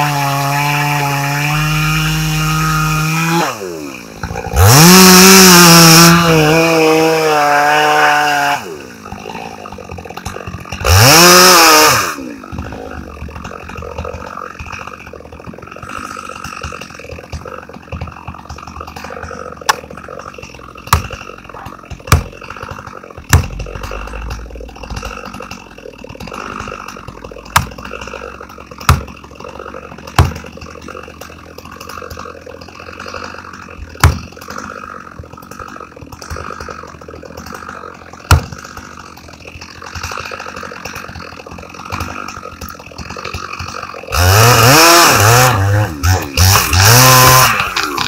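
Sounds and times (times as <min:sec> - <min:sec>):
chainsaw idling: 0:00.0 - 0:48.0
axe striking tree trunk: 0:04.2 - 0:28.0, 0:28.6 - 0:29.2, 0:30.0 - 0:30.7, 0:33.8 - 0:36.8, 0:38.2 - 0:39.1.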